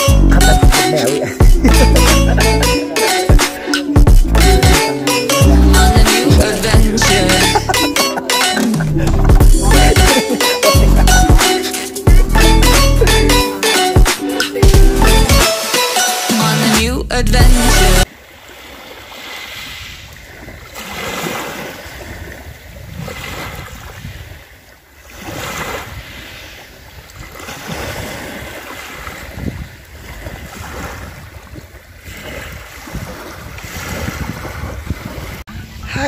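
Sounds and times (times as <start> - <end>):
loud music: 0.0 - 18.1
waves breaking on pebble beach: 18.1 - 35.5
wind rumbling on microphone: 19.5 - 36.0.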